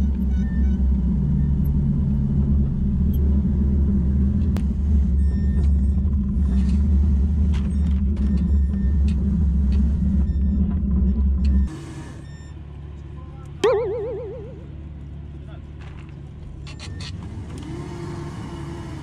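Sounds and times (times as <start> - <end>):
boat engine low rumble: 0.0 - 11.7.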